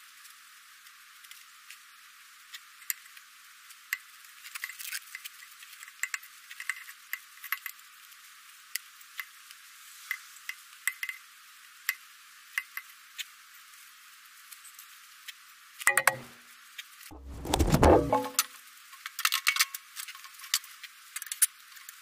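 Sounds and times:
metal pipe clatter: 15.9s - 16.3s, 17.1s - 18.4s.

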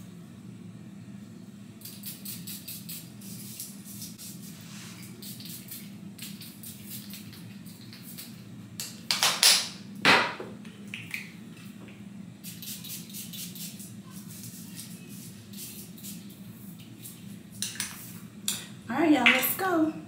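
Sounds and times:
perfume atomizer spraying: 1.8s - 8.4s, 12.4s - 18.2s.

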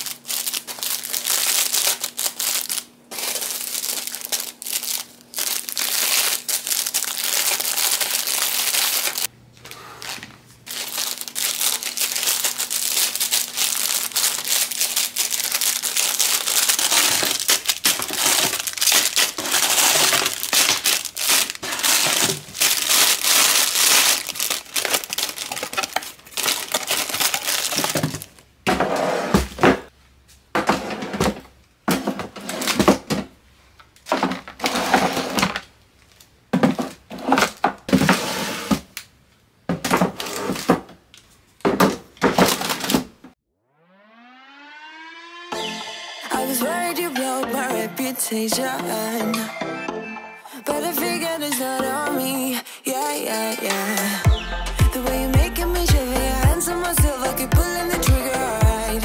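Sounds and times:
packaging crackling as crumpled: 0.0s - 28.4s.

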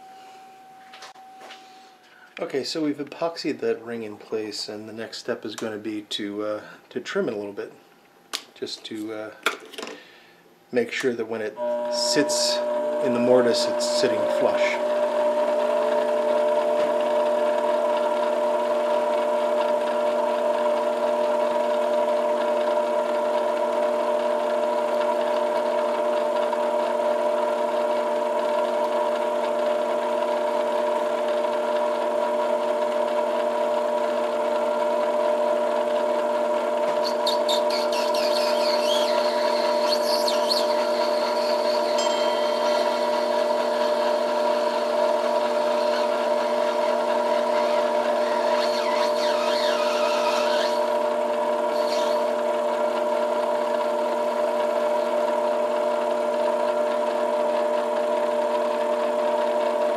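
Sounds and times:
metal lathe motor whine: 11.6s - 59.9s
cutting tool scraping plastic: 36.9s - 42.0s, 45.5s - 51.0s, 51.7s - 52.3s.

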